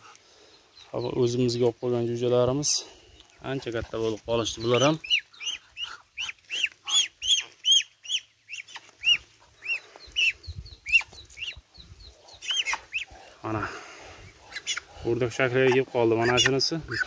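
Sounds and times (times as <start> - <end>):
chicks peeping: 0.0 - 17.0.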